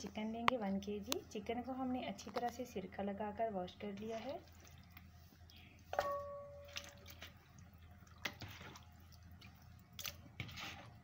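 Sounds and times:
soft knocks and wet squelches: 0:03.9 - 0:11.0.

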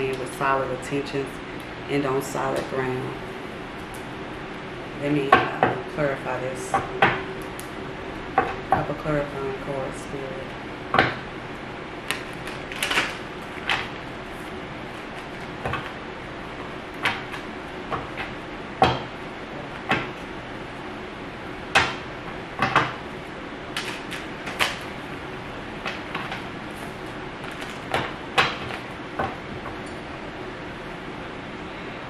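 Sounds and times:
steady background hum: 0:00.0 - 0:32.0
cards being shuffled: 0:25.8 - 0:27.9.

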